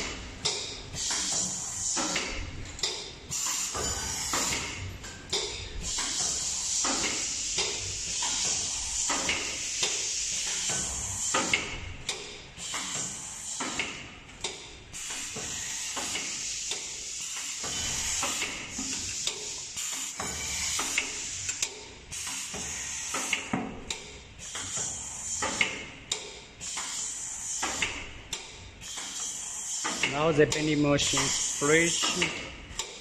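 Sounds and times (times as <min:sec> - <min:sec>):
machine clicks and knocks: 0:00.0 - 0:19.5, 0:20.2 - 0:31.4, 0:32.0 - 0:33.0
compressed air hissing: 0:05.8 - 0:11.5.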